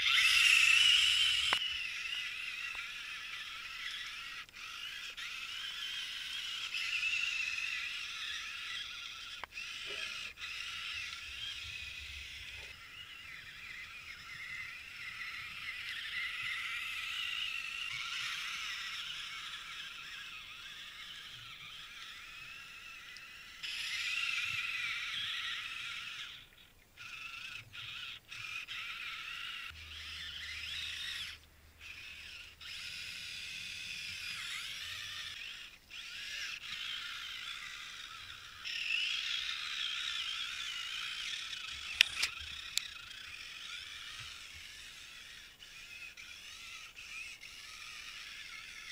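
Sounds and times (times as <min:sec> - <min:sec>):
small electric motor whining: 0:00.0 - 0:48.9
sharp clicks: 0:41.6 - 0:43.2.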